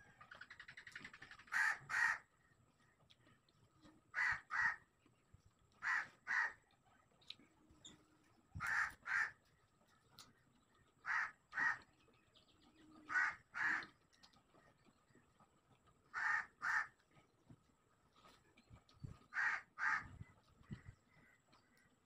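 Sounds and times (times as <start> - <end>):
crow cawing: 1.5 - 2.3, 4.1 - 4.8, 5.8 - 6.6, 8.6 - 9.4, 11.0 - 11.8, 13.1 - 13.9, 16.1 - 17.0, 19.3 - 20.2.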